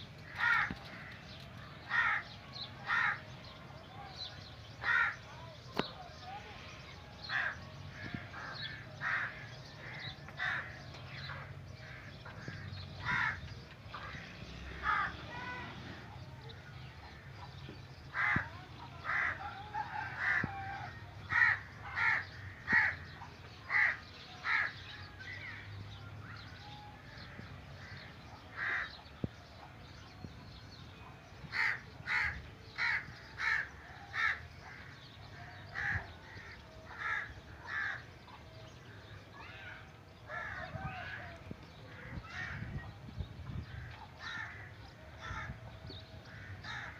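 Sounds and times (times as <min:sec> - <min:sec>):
crows cawing: 0:00.2 - 0:01.3, 0:01.9 - 0:03.2, 0:04.8 - 0:05.2, 0:07.3 - 0:15.2, 0:18.1 - 0:23.1, 0:23.7 - 0:24.8, 0:27.8 - 0:29.0, 0:31.5 - 0:38.1, 0:39.0 - 0:42.7, 0:43.6 - 0:45.6, 0:46.3 - 0:46.9.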